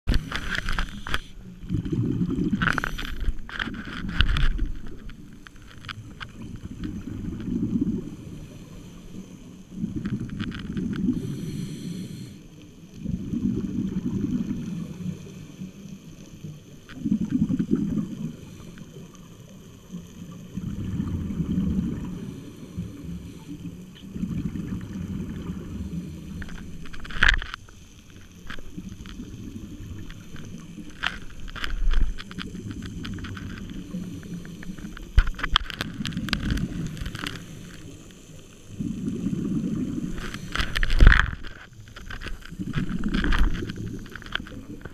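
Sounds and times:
underwater exhaled bubbles: 0:00.1 - 0:44.9.

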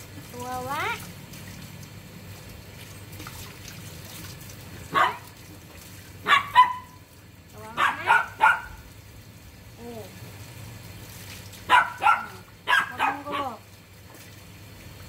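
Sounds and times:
dog barking: 0:04.9 - 0:05.3, 0:06.2 - 0:07.0, 0:07.7 - 0:08.8, 0:11.7 - 0:13.6.

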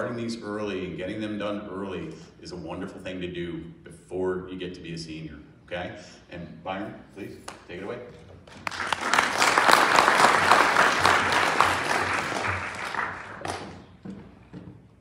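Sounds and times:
audience applauding: 0:08.5 - 0:14.0.

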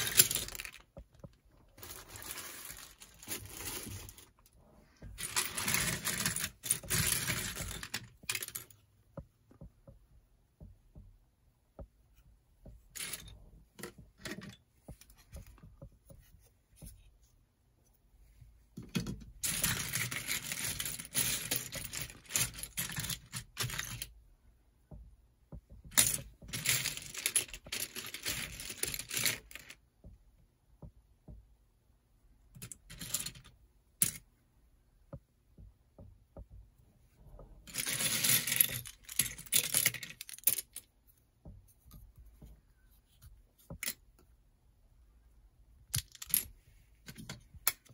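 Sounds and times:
plastic packaging rustling: 0:00.0 - 0:04.5
plastic pieces clattering: 0:00.0 - 0:04.5, 0:05.1 - 0:08.7, 0:18.9 - 0:24.1, 0:25.9 - 0:29.8, 0:37.7 - 0:40.8, 0:45.9 - 0:47.9.

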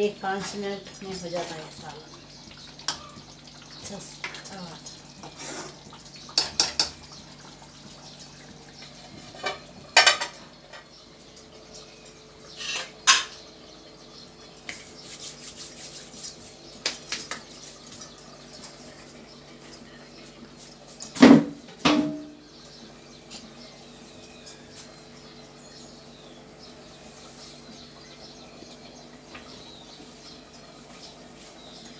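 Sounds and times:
metal kitchen utensils clinking: 0:00.0 - 0:19.2.

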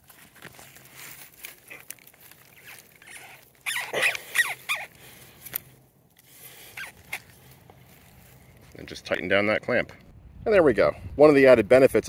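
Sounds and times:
rubber coupling squeaking on pipe: 0:02.4 - 0:05.6, 0:06.7 - 0:07.4.

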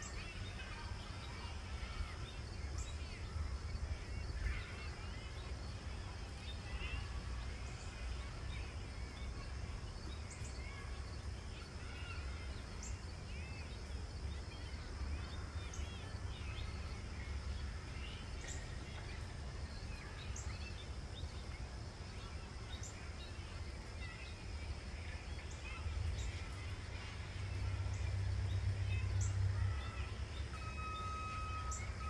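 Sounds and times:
small birds chirping: 0:00.0 - 0:32.0
faint steady high tone: 0:29.8 - 0:32.0.

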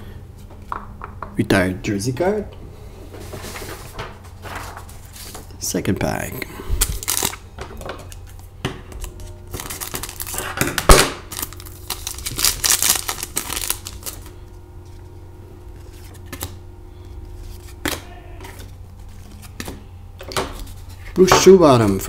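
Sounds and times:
cards being handled: 0:06.8 - 0:07.4, 0:08.0 - 0:10.5, 0:11.3 - 0:15.1, 0:15.7 - 0:16.6, 0:17.3 - 0:22.0
wrapper tearing and crinkling: 0:06.8 - 0:07.4, 0:09.0 - 0:14.3.

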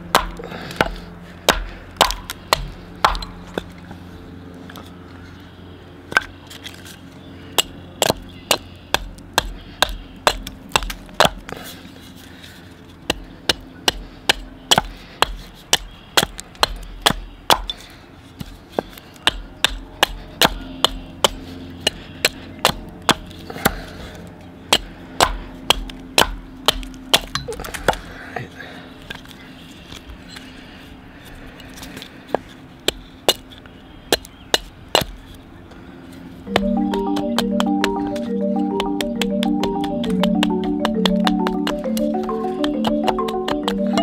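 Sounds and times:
axe chopping wood: 0:00.0 - 0:03.7, 0:07.6 - 0:11.5, 0:13.1 - 0:17.8, 0:18.4 - 0:23.8, 0:24.7 - 0:28.0, 0:34.1 - 0:35.2.

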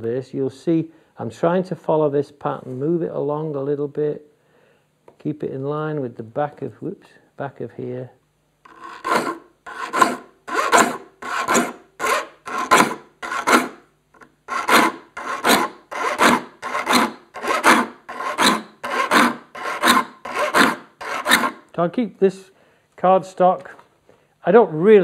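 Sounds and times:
file rasping on saw teeth: 0:08.7 - 0:21.6.

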